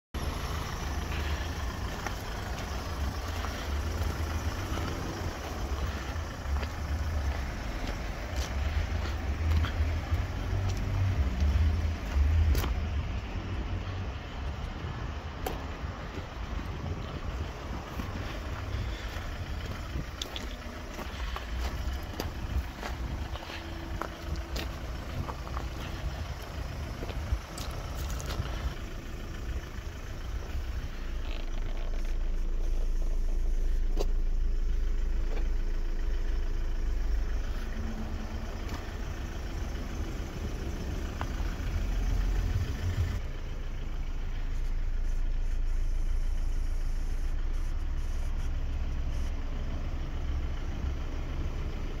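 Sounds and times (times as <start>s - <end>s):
wind buffeting microphone: 14.4s - 20.5s.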